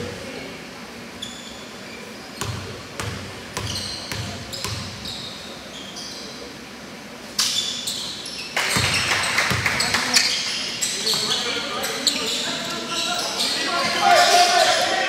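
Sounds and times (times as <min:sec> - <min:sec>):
sneaker squeaks: 0:01.1 - 0:06.7, 0:07.3 - 0:15.0
basketball bouncing on gym floor: 0:02.4 - 0:05.1, 0:08.7 - 0:10.2, 0:11.0 - 0:11.4.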